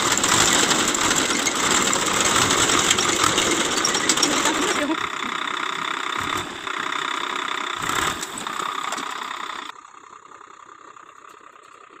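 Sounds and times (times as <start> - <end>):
reaper clattering: 0.0 - 7.0
tractor engine running: 0.0 - 12.0.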